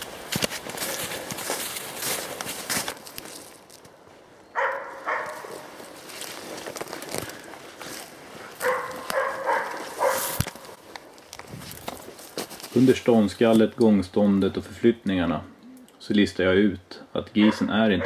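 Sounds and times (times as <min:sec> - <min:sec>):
footsteps crunching through snow: 0:00.0 - 0:13.8
dog barking: 0:04.6 - 0:05.7, 0:08.6 - 0:10.4, 0:17.4 - 0:18.0.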